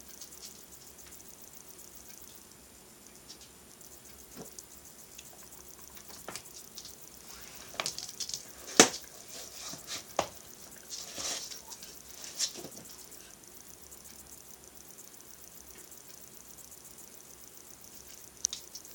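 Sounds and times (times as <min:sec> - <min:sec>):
hooves tapping on tiled floor: 0:03.2 - 0:13.4.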